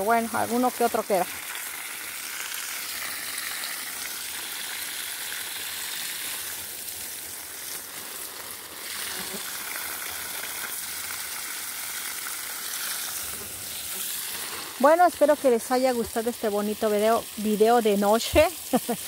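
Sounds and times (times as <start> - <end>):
hose water spraying on leaves: 0.0 - 19.0.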